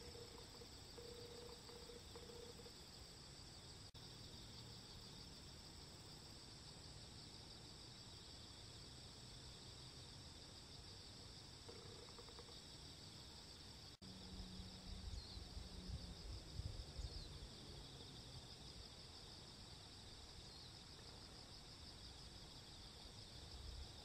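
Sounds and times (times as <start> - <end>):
insects trilling: 0.0 - 6.1, 9.8 - 24.0.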